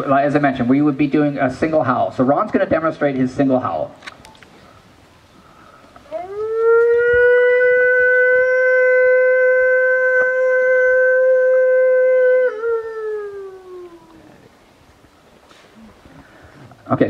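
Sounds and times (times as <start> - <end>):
man imitating a wolf howl: 6.1 - 14.4.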